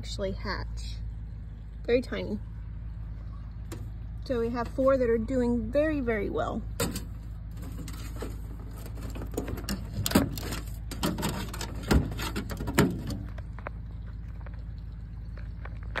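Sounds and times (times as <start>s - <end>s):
steady low rumble: 0.0s - 16.0s
birdhouse knocking and rattling: 6.8s - 13.6s.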